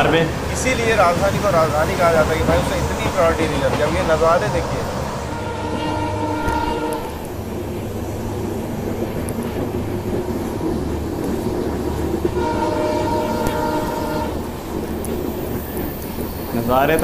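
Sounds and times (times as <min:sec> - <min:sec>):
train rumbling: 0:00.0 - 0:17.0
diesel locomotive horn: 0:02.0 - 0:07.3, 0:12.2 - 0:14.6.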